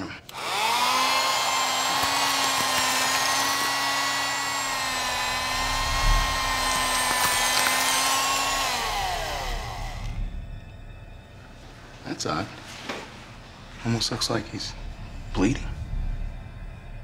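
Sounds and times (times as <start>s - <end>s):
electric bone saw whining: 0.3s - 10.3s.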